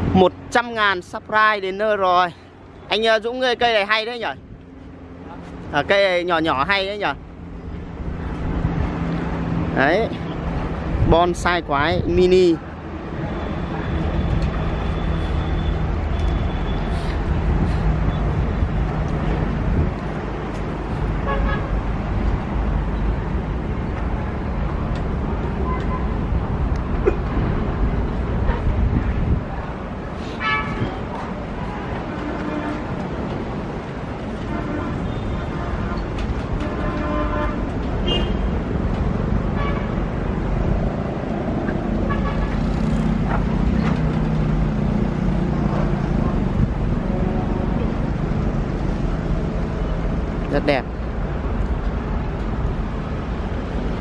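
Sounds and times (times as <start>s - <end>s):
low rumble of road traffic: 0.0s - 54.0s.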